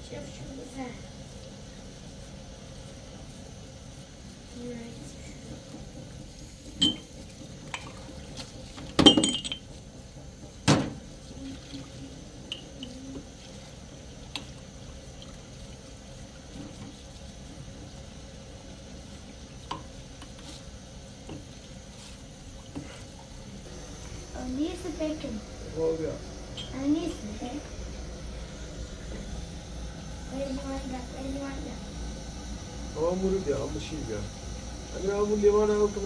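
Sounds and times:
tap water running at a sink: 0:00.0 - 0:36.0
glass clinks: 0:09.0 - 0:09.6.

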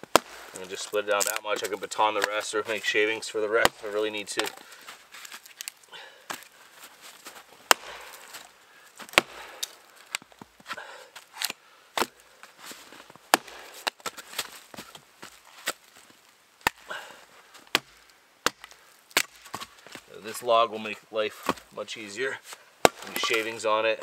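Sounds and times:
axe chopping wood: 0:00.0 - 0:00.6, 0:01.2 - 0:02.5, 0:03.6 - 0:04.6, 0:07.6 - 0:08.4, 0:09.0 - 0:10.8, 0:11.4 - 0:12.2, 0:13.3 - 0:14.6, 0:16.6 - 0:17.0, 0:17.7 - 0:20.0, 0:21.4 - 0:21.7, 0:22.8 - 0:23.6.

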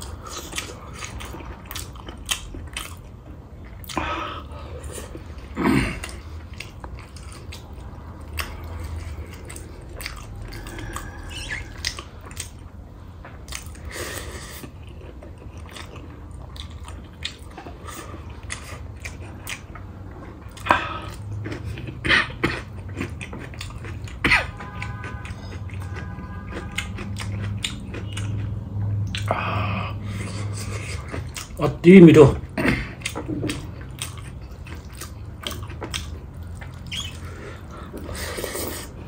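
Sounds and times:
person chewing food: 0:00.0 - 0:31.8, 0:32.4 - 0:39.0
mouth clicks: 0:36.7 - 0:37.3.

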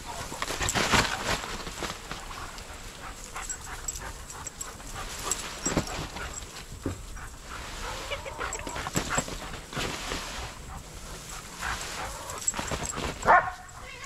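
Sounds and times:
dog whining: 0:07.8 - 0:09.3.

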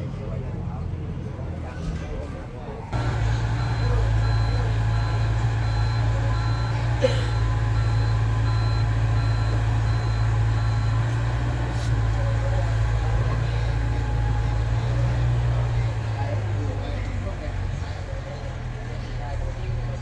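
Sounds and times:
diesel engine running: 0:02.9 - 0:20.0
warning alarm beeping: 0:03.0 - 0:14.8.

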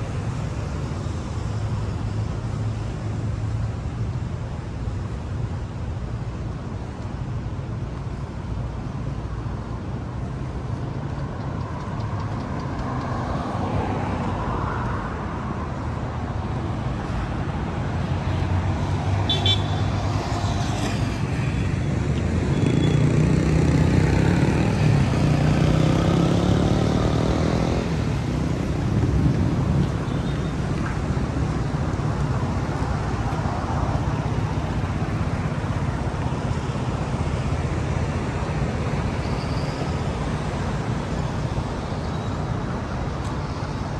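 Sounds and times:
road traffic rumble: 0:00.0 - 0:43.9
vehicle engine passing: 0:22.6 - 0:29.8.

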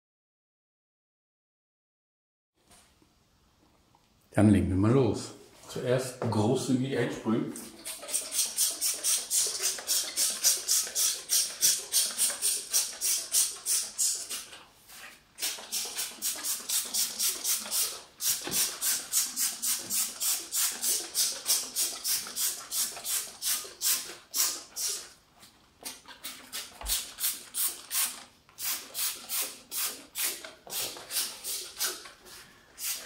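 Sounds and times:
spray bottle squirting: 0:07.6 - 0:14.6, 0:15.4 - 0:25.1, 0:25.8 - 0:33.0.

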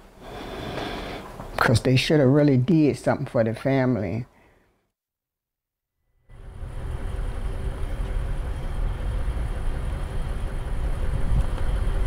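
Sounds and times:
faint hum: 0:06.2 - 0:12.0
engine and traffic rumble: 0:06.3 - 0:12.0.

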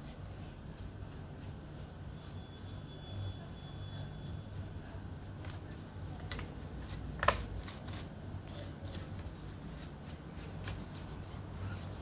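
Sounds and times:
laptop handling clicks and rustles: 0:07.2 - 0:09.2.

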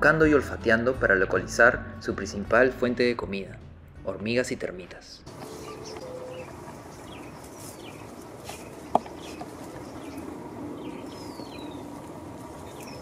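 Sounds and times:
animal sniffing: 0:05.3 - 0:13.0
faint birds chirping: 0:05.3 - 0:13.0
rustling through dry scrub: 0:05.3 - 0:13.0.

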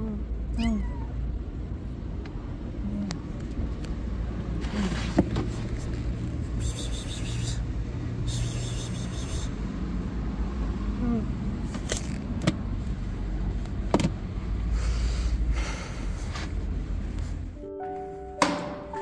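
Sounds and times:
steady low rumble: 0:00.0 - 0:08.3
kitten mewing: 0:00.4 - 0:01.4
plastic latch clicks: 0:18.4 - 0:18.8.

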